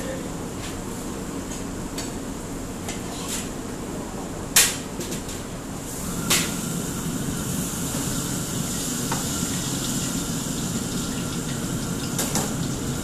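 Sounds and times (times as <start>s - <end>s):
water running: 7.8s - 13.0s.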